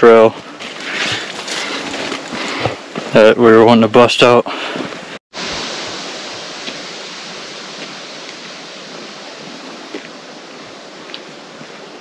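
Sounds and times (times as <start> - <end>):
faint footsteps on dirt: 0.0 - 3.8, 4.4 - 5.2, 6.6 - 12.0
rushing stream water: 0.4 - 12.0.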